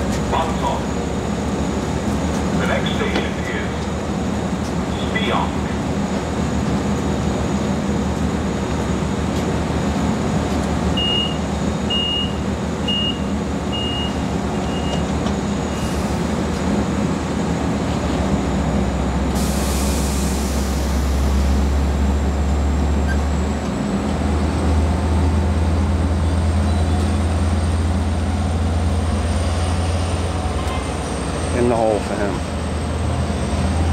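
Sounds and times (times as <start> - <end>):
diesel locomotive engine droning: 0.0 - 33.9
air hissing: 19.4 - 21.2.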